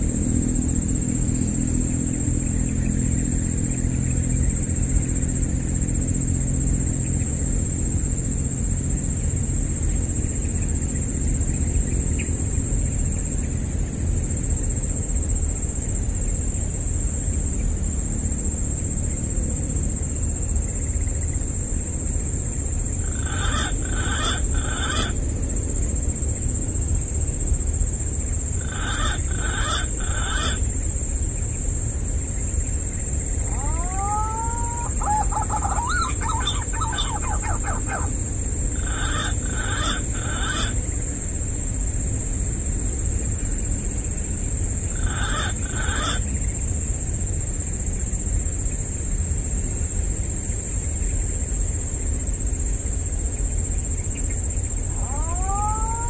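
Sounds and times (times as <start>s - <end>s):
high insect-like drone: 0.0s - 56.0s
low rumble: 21.3s - 23.2s, 34.9s - 44.9s.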